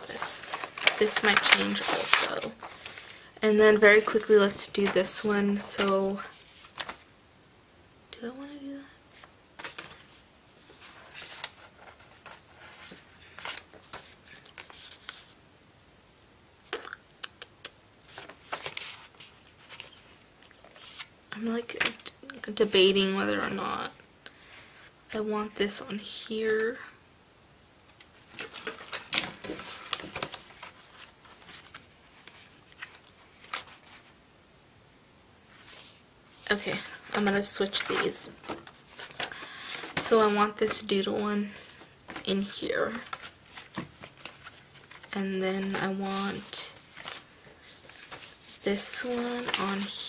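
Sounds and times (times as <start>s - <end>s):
paper rustling: 0.0s - 3.2s, 3.8s - 7.1s, 9.1s - 15.4s, 18.1s - 21.1s, 28.0s - 34.2s, 35.5s - 50.0s
paper rustling and tapping: 0.2s - 2.8s, 28.3s - 33.8s, 42.9s - 45.1s.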